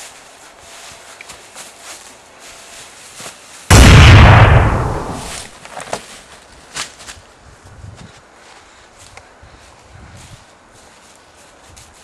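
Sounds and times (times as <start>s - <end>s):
faint rustles: 0.0s - 3.7s, 5.2s - 12.0s
explosion boom: 3.7s - 5.5s.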